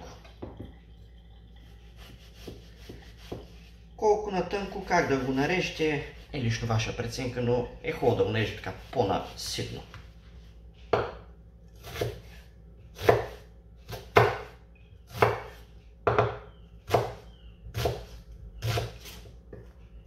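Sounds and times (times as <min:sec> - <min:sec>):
knife chopping on wooden board: 0:02.1 - 0:03.5, 0:10.9 - 0:11.2, 0:11.8 - 0:12.3, 0:12.9 - 0:19.6.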